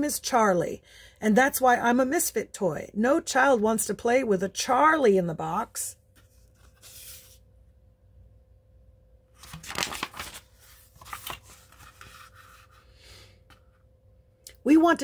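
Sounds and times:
book page rustling: 0:06.1 - 0:07.4, 0:09.4 - 0:12.9.

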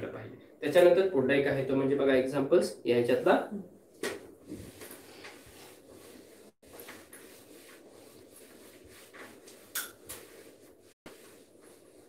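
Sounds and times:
duster scrubbing whiteboard: 0:04.4 - 0:12.0.

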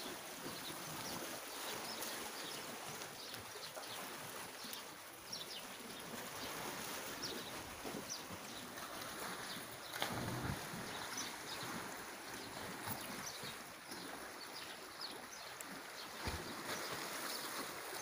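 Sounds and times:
small birds chirping: 0:00.4 - 0:18.0.

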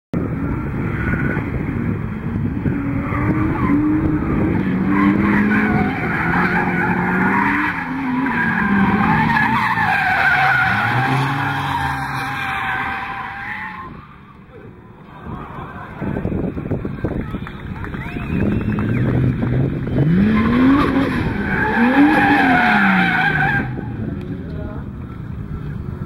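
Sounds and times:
car engine revving: 0:17.2 - 0:24.9.

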